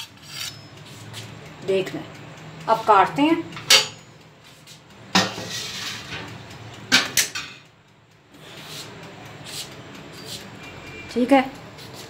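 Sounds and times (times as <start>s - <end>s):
kitchenware clattering: 3.6s - 4.1s, 5.1s - 6.3s.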